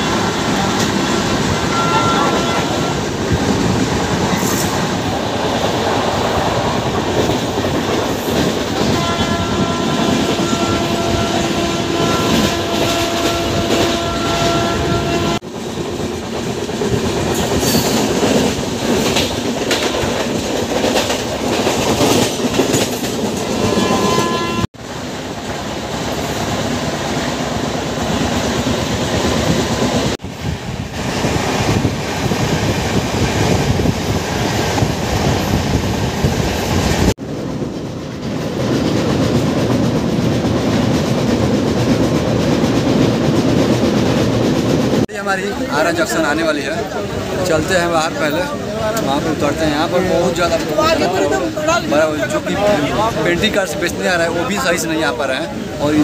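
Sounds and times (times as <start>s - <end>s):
train horn: 0.0s - 3.1s, 8.8s - 15.4s, 23.6s - 24.7s
train wheels clattering over rails: 0.0s - 51.5s.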